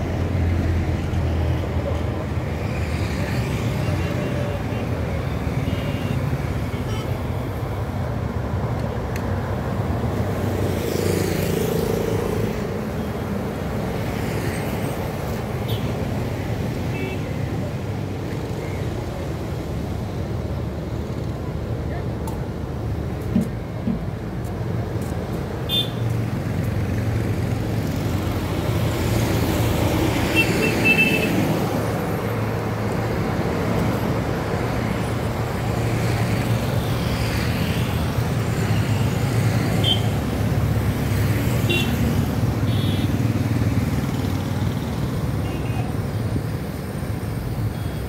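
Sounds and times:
motorcycles passing: 0:09.7 - 0:19.3, 0:26.1 - 0:48.0.

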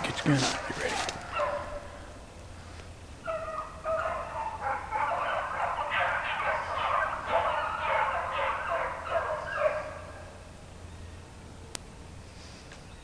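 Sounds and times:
dogs baying in chorus: 0:00.0 - 0:02.2, 0:03.2 - 0:10.4.

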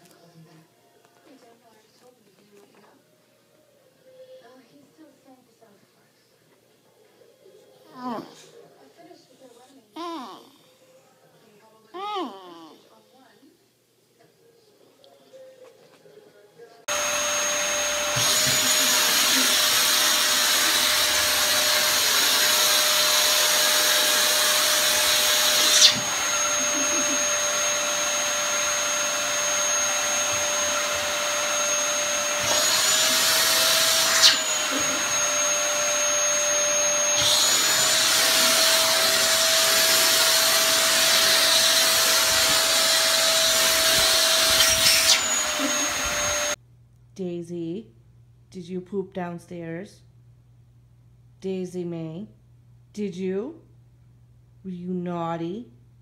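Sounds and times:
vacuum cleaner running: 0:16.9 - 0:46.6.

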